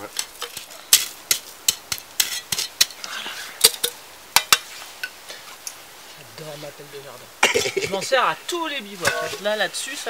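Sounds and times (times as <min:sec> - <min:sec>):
metal utensils clinking on cookware: 0:09.0 - 0:09.6.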